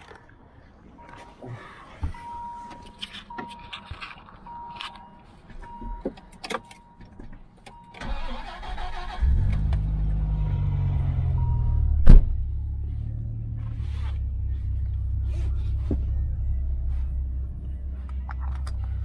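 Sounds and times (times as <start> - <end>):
car engine idling high: 8.0 - 19.0.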